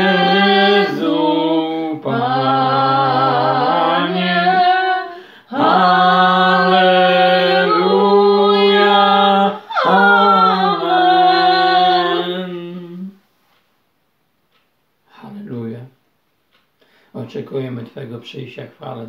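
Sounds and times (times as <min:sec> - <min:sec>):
man singing a hymn: 0:00.0 - 0:13.1.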